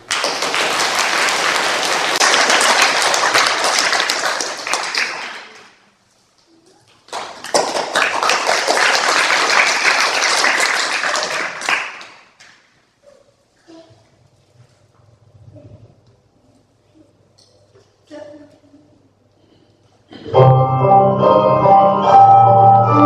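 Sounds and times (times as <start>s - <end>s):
audience applauding: 0.0s - 5.8s, 7.1s - 12.6s.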